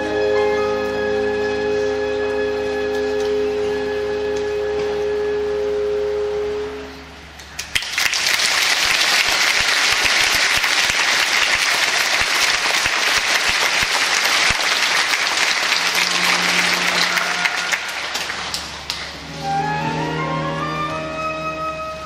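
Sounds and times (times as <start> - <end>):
audience applauding: 7.6 - 19.6
orchestra low held note: 15.7 - 18.4.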